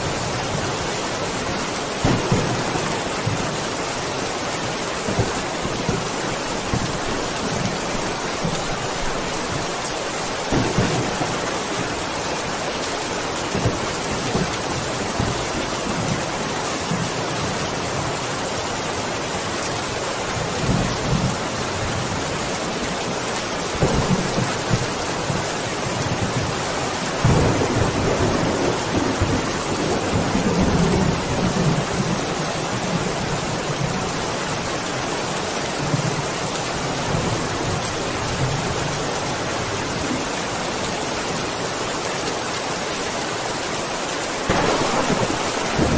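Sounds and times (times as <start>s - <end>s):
distant thunder rumbling: 0.0s - 12.6s, 23.7s - 33.1s, 44.4s - 45.9s
heavy rain falling: 0.0s - 45.9s.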